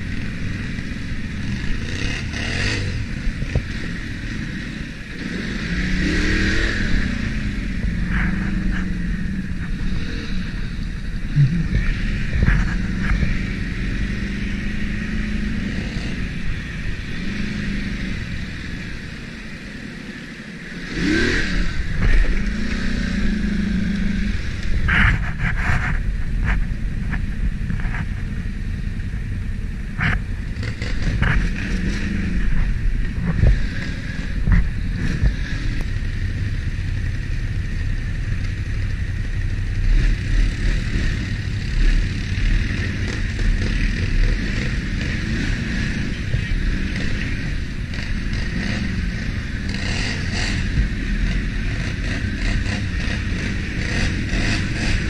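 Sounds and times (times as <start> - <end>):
atv engine revving: 0.0 - 55.0.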